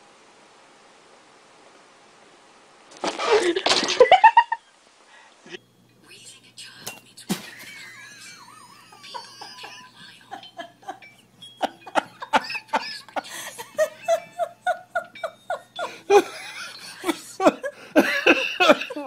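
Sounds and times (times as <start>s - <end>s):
person laughing: 7.3s - 19.0s.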